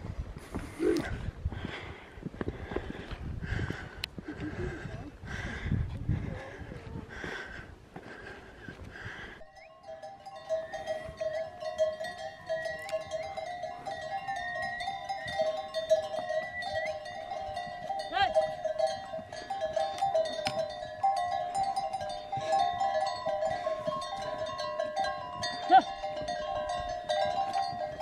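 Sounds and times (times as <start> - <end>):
pack animal bells jingling: 9.5 - 28.0.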